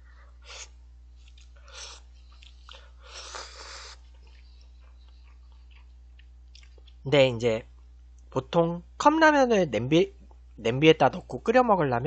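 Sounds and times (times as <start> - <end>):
chewing: 1.2 - 7.0
person slurping noodles: 1.7 - 2.0, 2.7 - 4.0.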